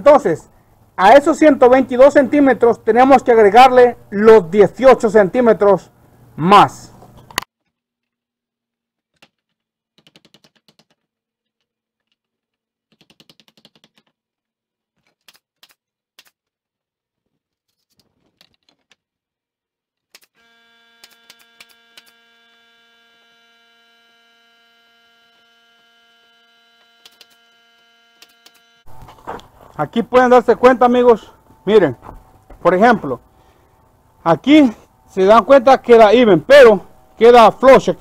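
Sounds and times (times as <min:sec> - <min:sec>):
nail gun clicks and knocks: 0:21.0 - 0:22.2, 0:27.0 - 0:27.4
steady multi-tone hum: 0:21.6 - 0:38.0.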